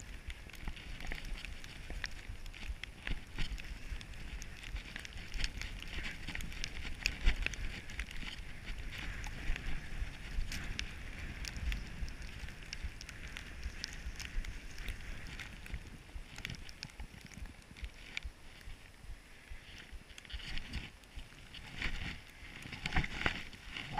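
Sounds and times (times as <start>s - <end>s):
wind rumbling on microphone: 0.0s - 23.9s
snow hissing and scraping under skis: 3.6s - 15.6s.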